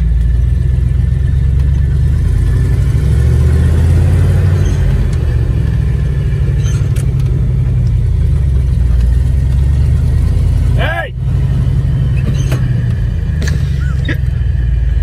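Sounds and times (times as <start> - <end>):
truck engine droning: 0.0 - 15.0
gearbox shifting: 4.4 - 14.6.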